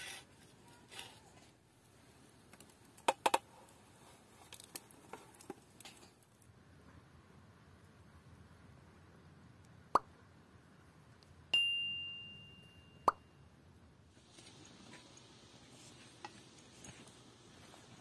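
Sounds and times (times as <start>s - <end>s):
bell ding: 11.6s - 13.4s.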